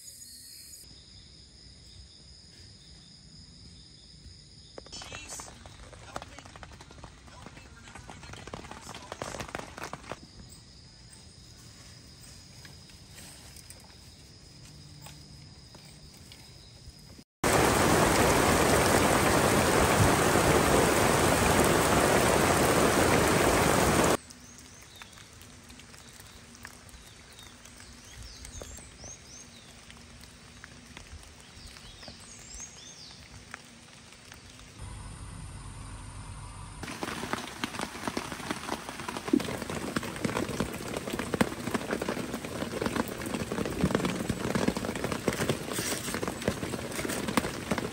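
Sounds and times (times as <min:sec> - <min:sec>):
raindrops pattering with ticks: 0:04.9 - 0:10.2, 0:17.4 - 0:34.8, 0:36.8 - 0:47.9
heavy rain: 0:17.4 - 0:24.2, 0:36.8 - 0:47.9.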